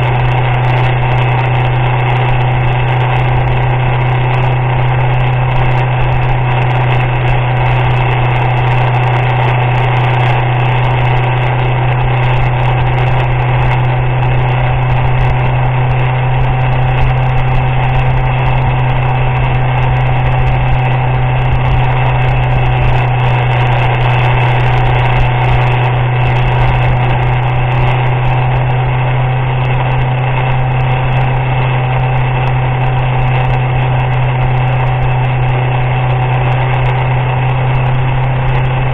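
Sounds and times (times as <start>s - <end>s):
motorcycle engine running: 0.0s - 38.9s
wind and road noise: 0.0s - 38.9s.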